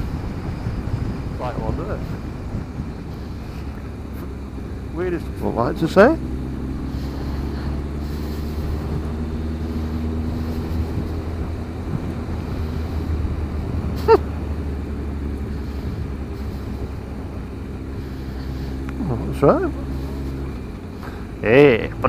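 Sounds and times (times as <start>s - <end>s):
wind noise on microphone: 0.0s - 4.4s, 8.2s - 14.3s
motorcycle engine running: 0.0s - 22.0s.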